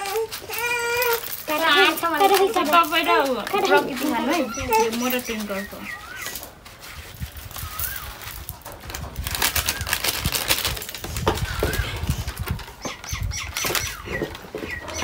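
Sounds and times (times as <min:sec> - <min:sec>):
plastic sachets crinkling: 0:00.0 - 0:15.0
bird chirping: 0:03.6 - 0:06.5, 0:11.4 - 0:15.0.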